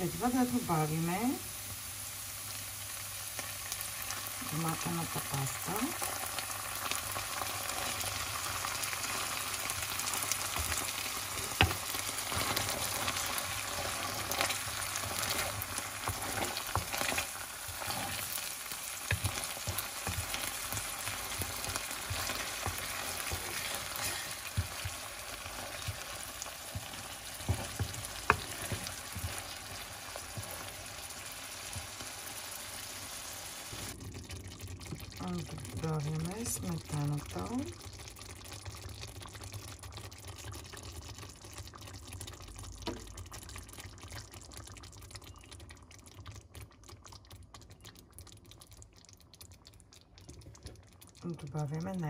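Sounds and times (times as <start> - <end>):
sauce frying and sizzling: 0.0 - 52.0
wooden spatula scraping pan: 11.6 - 18.4, 19.1 - 30.7.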